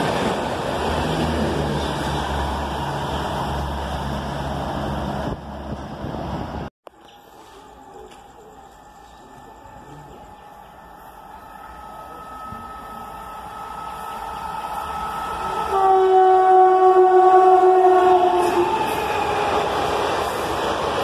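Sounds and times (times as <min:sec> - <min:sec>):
train horn: 0:15.0 - 0:19.5.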